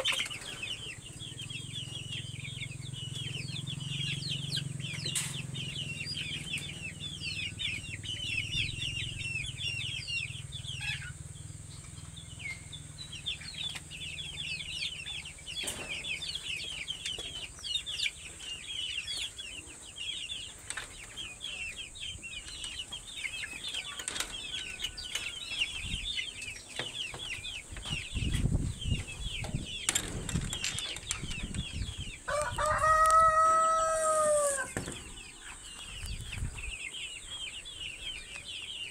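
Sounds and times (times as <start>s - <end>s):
chicks peeping: 0.0s - 38.9s
rooster crowing: 32.3s - 34.8s.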